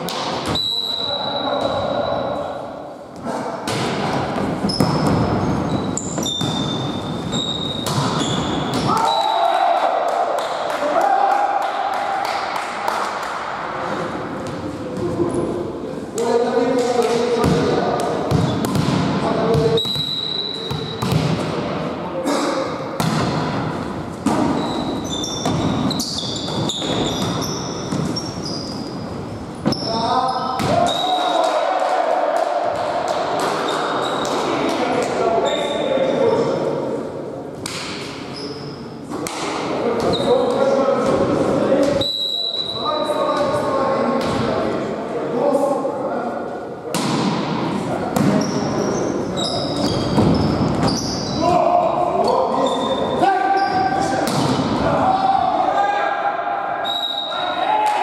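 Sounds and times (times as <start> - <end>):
whistle tone: 0.5 - 1.5, 19.8 - 20.7, 42.0 - 42.9, 56.8 - 57.6
volleyball hits: 3.6 - 7.0, 7.6 - 9.2, 16.8 - 20.0, 20.7 - 21.8, 23.0 - 28.2, 30.6 - 31.6, 46.9 - 48.4, 54.2 - 54.9
shoe squeaks on court floor: 4.6 - 8.8, 19.7 - 21.1, 24.4 - 31.1, 33.7 - 34.3, 40.0 - 40.4, 48.3 - 51.4, 52.3 - 54.1.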